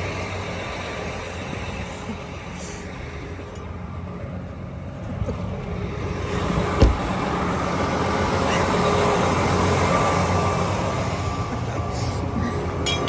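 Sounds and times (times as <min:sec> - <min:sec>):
tractor diesel engine idling: 0:00.0 - 0:13.0
sharp thump: 0:06.8 - 0:07.1.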